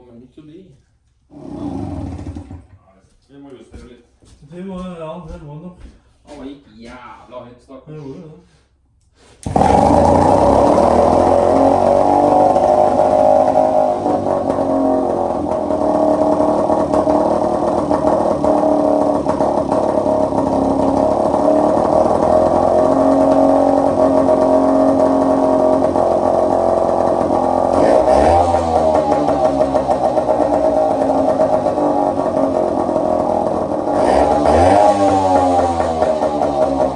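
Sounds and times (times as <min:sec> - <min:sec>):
outboard motor running: 0:09.4 - 0:36.9.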